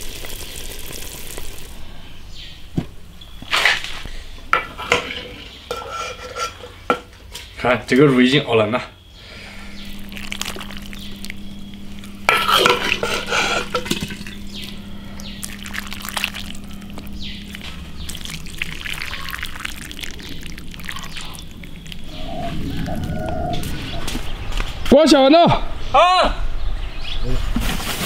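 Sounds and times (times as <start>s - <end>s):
sauce pouring and dripping: 0.0s - 1.8s, 9.8s - 23.3s.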